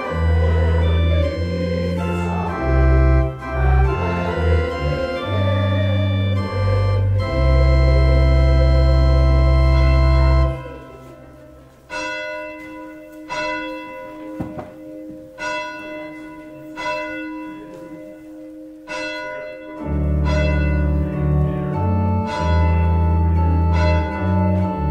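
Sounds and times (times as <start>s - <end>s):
organ chords over deep bass: 0.0s - 11.8s, 19.7s - 24.9s
bell-like organ chords: 0.0s - 24.9s.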